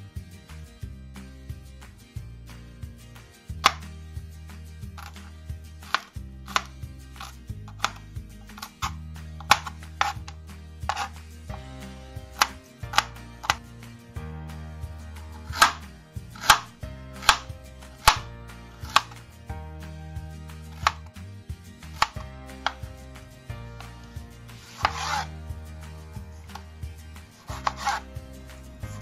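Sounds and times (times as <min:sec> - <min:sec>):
knife chopping on plastic board: 0:12.3 - 0:13.6.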